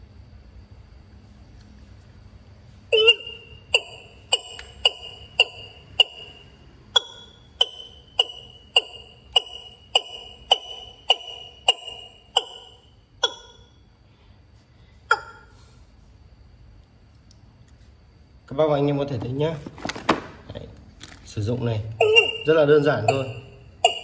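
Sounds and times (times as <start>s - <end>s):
bird call from speaker: 2.9s - 5.5s.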